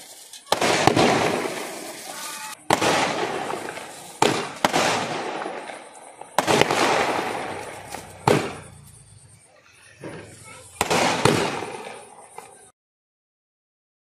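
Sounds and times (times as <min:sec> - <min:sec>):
fireworks bangs: 0:00.0 - 0:12.7.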